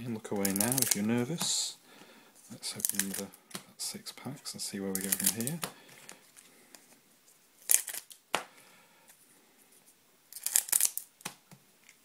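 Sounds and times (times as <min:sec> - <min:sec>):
foil crinkling and tearing: 0:00.4 - 0:01.1, 0:02.6 - 0:03.3, 0:04.9 - 0:06.2, 0:07.6 - 0:08.2, 0:10.4 - 0:11.1.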